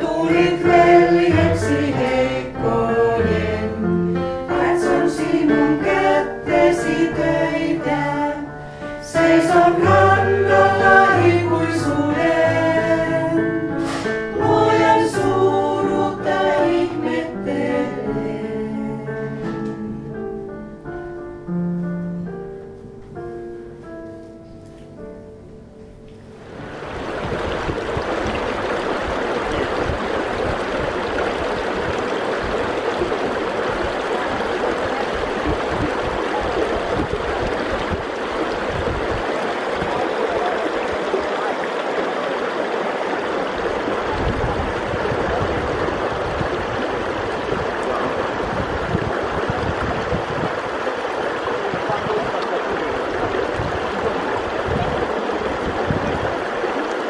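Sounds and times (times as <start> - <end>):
stream flowing over stones: 26.4 - 57.0.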